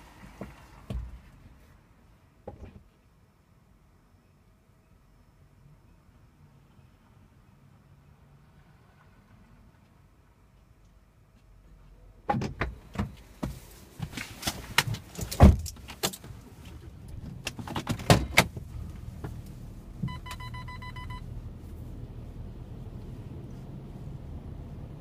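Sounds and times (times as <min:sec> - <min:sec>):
low rumble of car rolling: 0:00.0 - 0:25.0.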